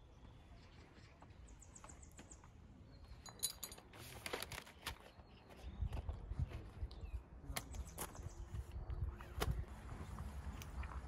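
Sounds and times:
camping gear clinking and rattling: 3.1s - 6.3s.

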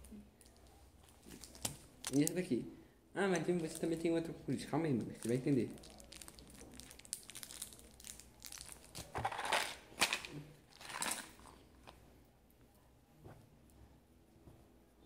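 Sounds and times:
hands rustling and crinkling items: 0.0s - 2.5s, 3.4s - 12.0s.

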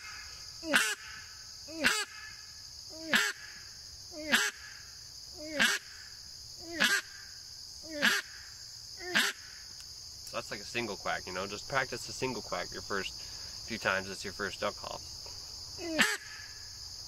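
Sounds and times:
duck call quacks: 0.0s - 1.2s, 1.8s - 2.3s, 3.1s - 3.5s, 4.2s - 4.7s, 5.5s - 5.9s, 6.7s - 7.2s, 8.0s - 8.3s, 9.0s - 9.4s, 15.9s - 16.5s.

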